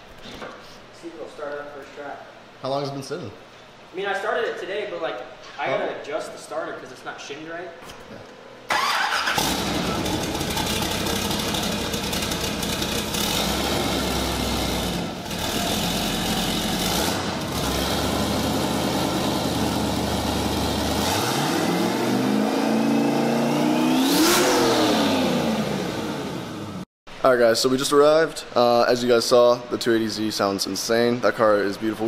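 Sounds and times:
car engine idling and revving: 9.4 - 26.8.

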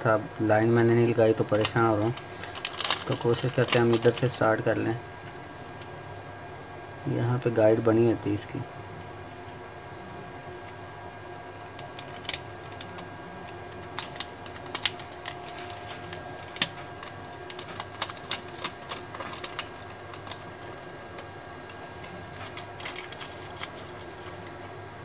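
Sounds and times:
faint steady hum: 0.0 - 25.0
plastic sticker crinkling and clicking: 1.5 - 4.4, 11.6 - 24.6.

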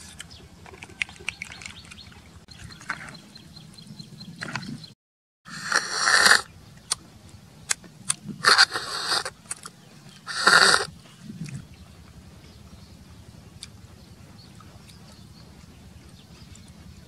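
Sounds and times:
snails slurped from shells: 5.5 - 7.0, 8.0 - 12.6.

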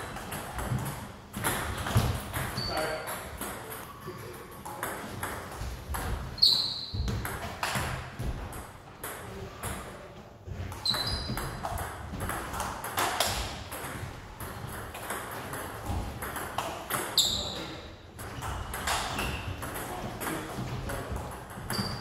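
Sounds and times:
table tennis ball hitting paddles: 0.0 - 9.9, 10.6 - 17.6, 18.2 - 22.0
ball bouncing on table: 4.5 - 9.8, 18.2 - 22.0.

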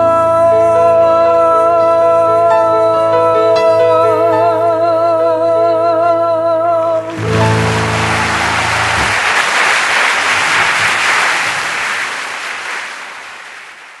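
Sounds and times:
audience clapping and cheering: 7.1 - 14.0.

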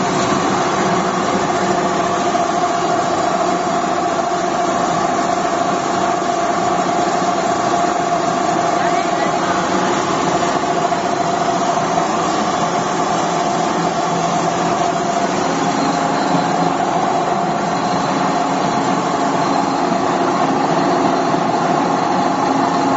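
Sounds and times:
pellet mill mechanical hum: 0.0 - 22.9.

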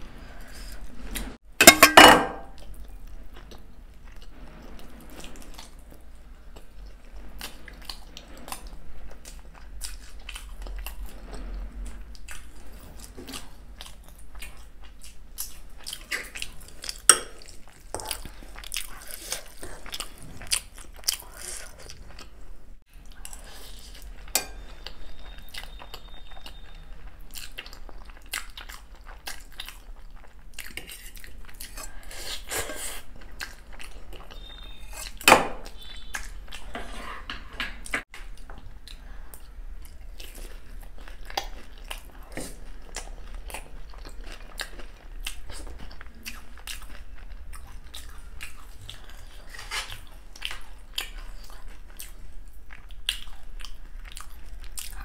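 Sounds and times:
spoons clinking against bowls: 1.6 - 2.5
person chewing and slurping: 2.4 - 35.2.

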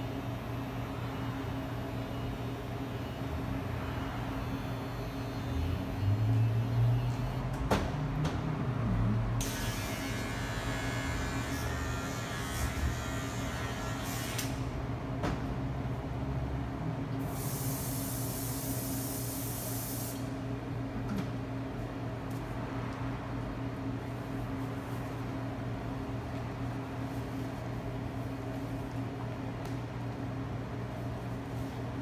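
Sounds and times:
electric hair clippers buzzing: 9.4 - 14.6.

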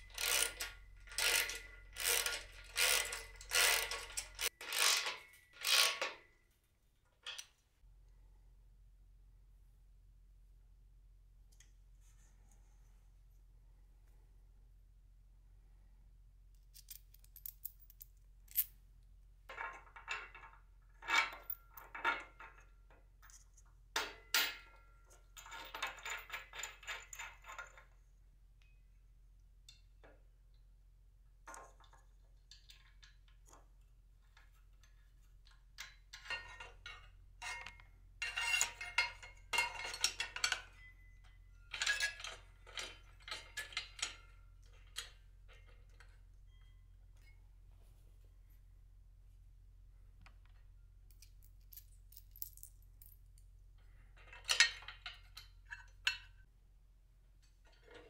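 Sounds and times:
metal hardware clinking and rattling: 16.7 - 18.7, 34.7 - 46.2, 50.5 - 56.5.

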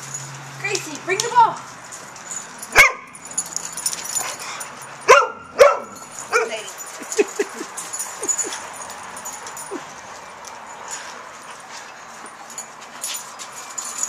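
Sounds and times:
dog barking: 2.7 - 3.1, 5.1 - 6.5
dog yipping: 5.1 - 6.6.

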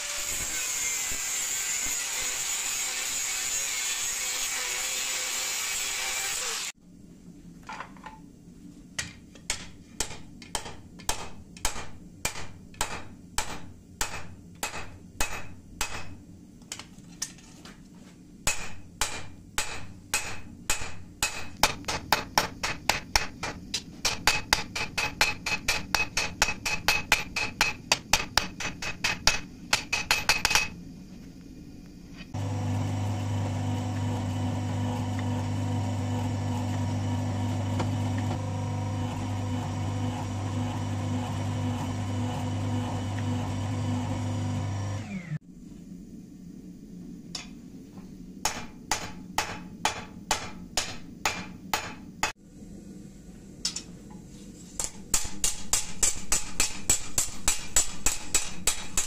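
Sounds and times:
hammer striking metal on anvil: 9.5 - 16.2, 18.4 - 30.8, 48.4 - 52.4, 54.8 - 59.0
press motor humming: 32.4 - 45.4.

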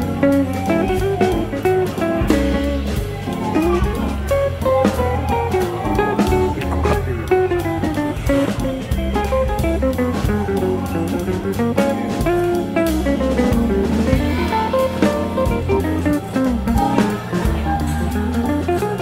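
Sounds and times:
guitar-led instrumental music: 0.0 - 19.0.

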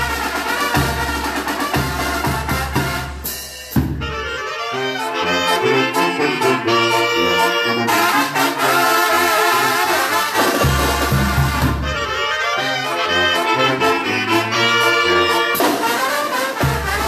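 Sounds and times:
trumpets and trombones melody: 0.0 - 17.0
sousaphone bass notes: 3.9 - 8.4.

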